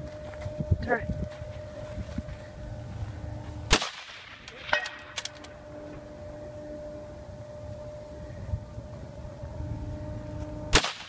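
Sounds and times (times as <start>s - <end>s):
rifle shot: 3.7s - 5.2s, 10.7s - 11.0s
distant metallic clang: 3.9s - 5.5s.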